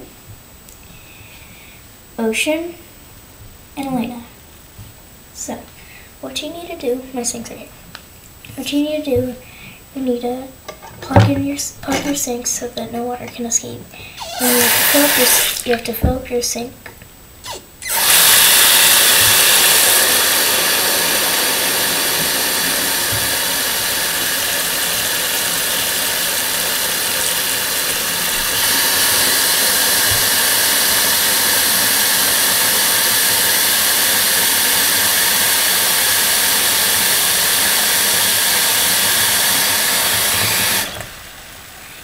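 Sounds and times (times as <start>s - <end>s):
faucet water running into sink: 14.2s - 15.8s, 17.8s - 41.1s.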